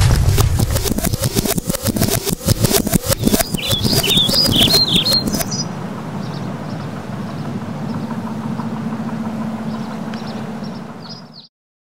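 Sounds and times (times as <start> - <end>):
low steady rumble: 0.0 - 3.2, 5.2 - 11.4
steady hum: 0.0 - 11.4.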